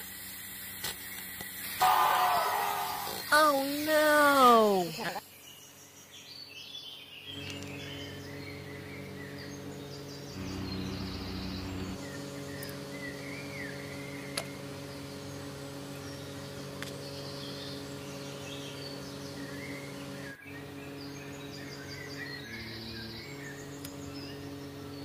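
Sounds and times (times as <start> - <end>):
small birds chirping: 0.0 - 25.0
steady low hum: 7.2 - 25.0.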